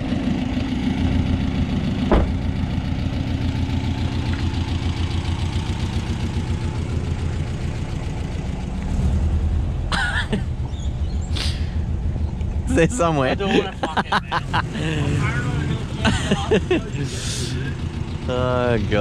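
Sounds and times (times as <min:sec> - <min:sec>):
vehicle engine idling: 0:00.0 - 0:19.0
short knock: 0:02.1 - 0:02.4.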